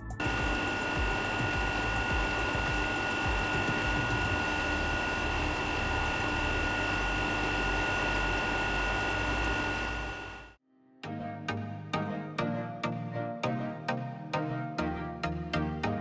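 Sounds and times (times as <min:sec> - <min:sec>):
mill high-pitched whine: 0:00.0 - 0:10.6.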